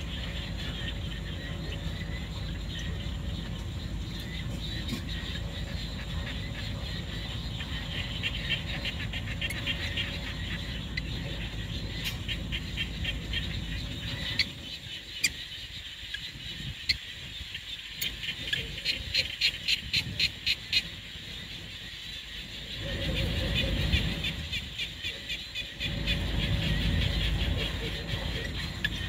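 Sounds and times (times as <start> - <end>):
animal chirping: 0.0 - 15.5
low rumble: 0.0 - 15.8, 25.6 - 29.0.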